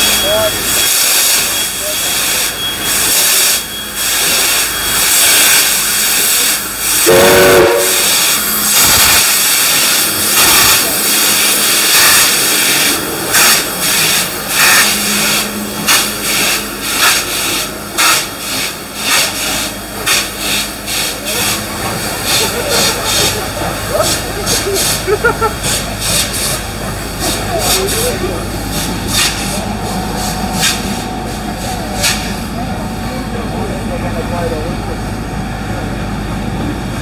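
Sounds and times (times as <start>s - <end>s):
steam whistle toot: 0.0s - 16.4s
steam locomotive hissing steam: 0.0s - 37.0s.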